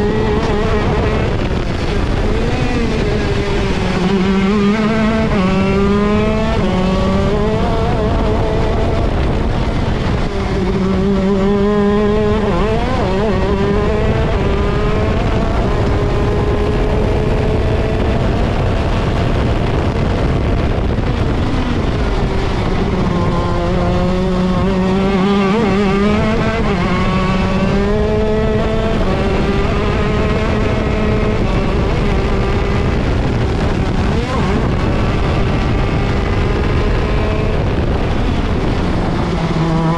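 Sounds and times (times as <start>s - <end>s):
kart engine racing: 0.0s - 39.9s.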